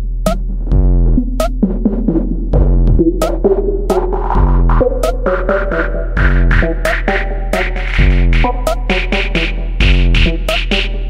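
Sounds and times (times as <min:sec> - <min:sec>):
drum machine beat: 0:00.0 - 0:11.0.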